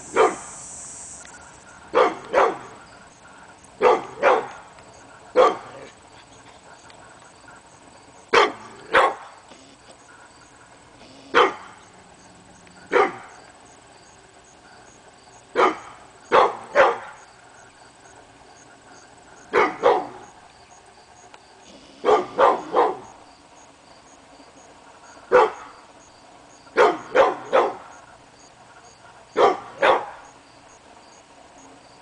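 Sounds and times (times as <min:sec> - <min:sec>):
dog barking: 0:00.2 - 0:00.5, 0:01.9 - 0:02.7, 0:03.8 - 0:04.6, 0:05.4 - 0:05.9, 0:08.3 - 0:09.3, 0:11.3 - 0:11.7, 0:12.9 - 0:13.3, 0:15.6 - 0:17.2, 0:19.5 - 0:20.3, 0:22.0 - 0:23.1, 0:25.3 - 0:25.7, 0:26.8 - 0:27.9, 0:29.4 - 0:30.3.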